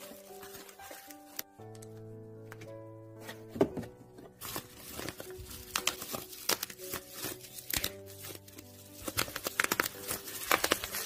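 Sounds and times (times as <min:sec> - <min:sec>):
bubble wrap popping: 0:00.0 - 0:02.7, 0:03.5 - 0:11.0.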